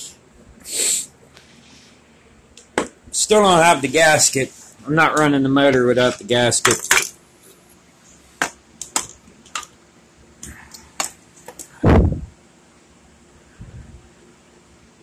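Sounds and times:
heavy low thump: 11.8s - 12.3s.

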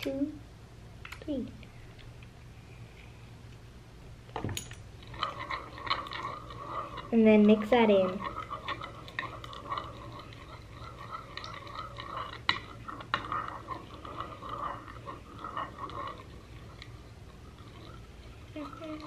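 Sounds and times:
metal spoon scraping and clinking bowl: 5.0s - 19.0s.

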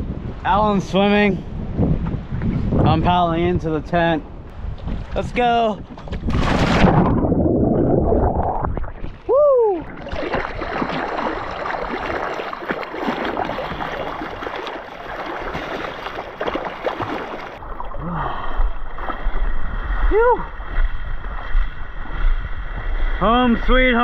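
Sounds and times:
hands paddling through water: 5.9s - 18.0s.

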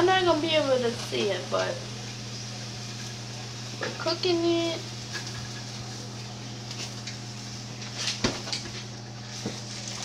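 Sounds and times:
sausages sizzling in a frying pan: 0.0s - 10.0s
steady low hum: 0.0s - 10.0s.

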